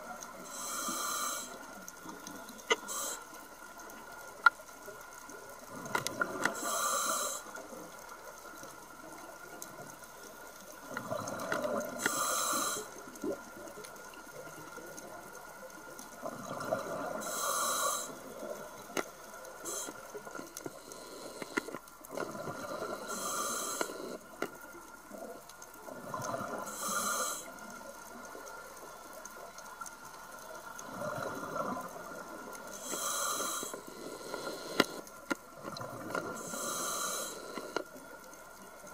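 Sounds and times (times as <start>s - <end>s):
faint clicks: 0.0s - 38.9s
diver breathing through regulator: 0.4s - 1.8s, 2.7s - 3.3s, 6.2s - 7.6s, 11.6s - 13.0s, 17.0s - 18.4s, 19.6s - 24.5s, 26.6s - 27.6s, 32.7s - 35.4s, 36.1s - 38.0s.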